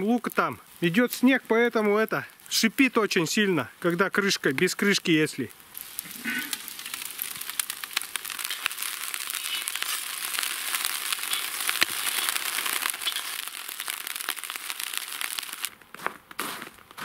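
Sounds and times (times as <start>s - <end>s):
onions sizzling in hot oil: 3.8s - 15.7s.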